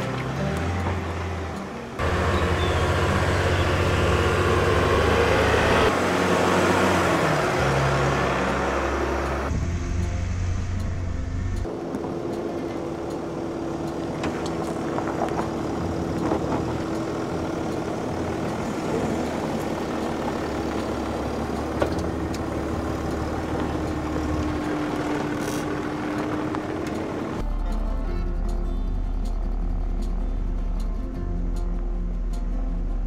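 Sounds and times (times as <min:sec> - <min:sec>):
engine running at low speed: 0:00.0 - 0:33.0
tyres crunching on gravel: 0:13.8 - 0:27.4.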